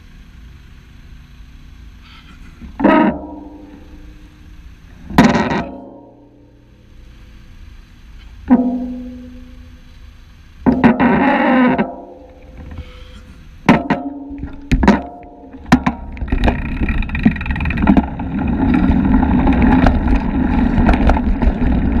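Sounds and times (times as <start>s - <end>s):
street traffic: 0.0s - 22.0s
sharp knocks: 8.5s - 9.6s, 13.7s - 18.2s
wind rumble on microphone: 15.6s - 22.0s.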